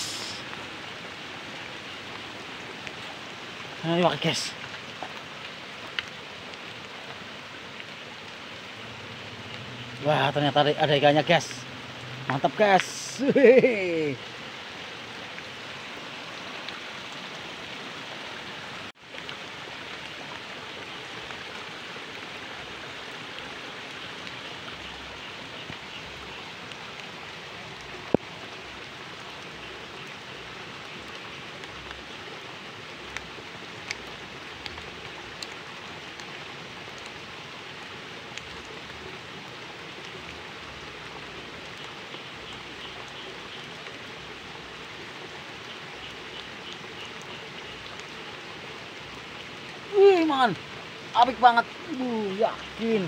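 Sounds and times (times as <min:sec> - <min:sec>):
water hissing: 0:00.0 - 0:05.4.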